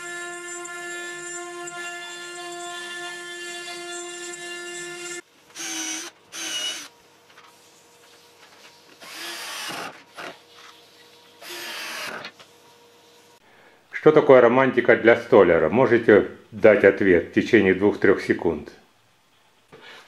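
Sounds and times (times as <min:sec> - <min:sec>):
drill driving screws into wood: 0:03.6 - 0:06.9, 0:09.0 - 0:10.4, 0:11.4 - 0:12.3.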